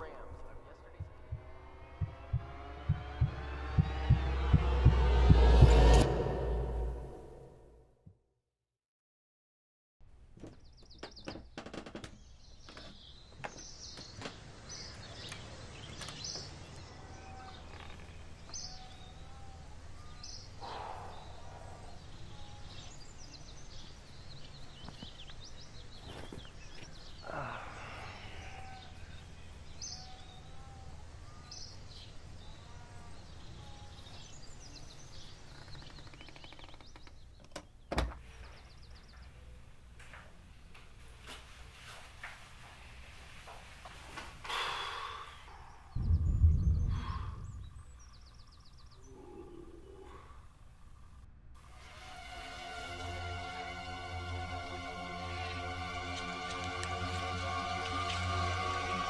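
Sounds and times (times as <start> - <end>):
birds chirping: 0.0 - 7.5, 10.4 - 41.3, 44.4 - 59.0
low hum: 0.0 - 7.9, 45.9 - 59.0
sharp thump: 46.0 - 48.1.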